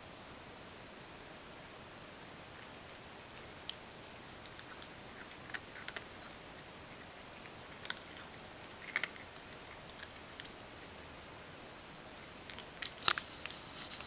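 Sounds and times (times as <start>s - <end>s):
cat chewing and licking: 2.5s - 11.5s, 12.1s - 14.0s.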